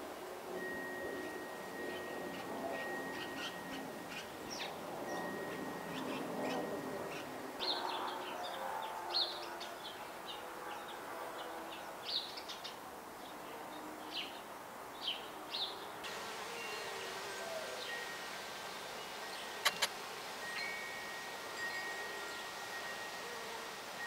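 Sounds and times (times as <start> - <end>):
birds chirping: 15.0 - 19.9.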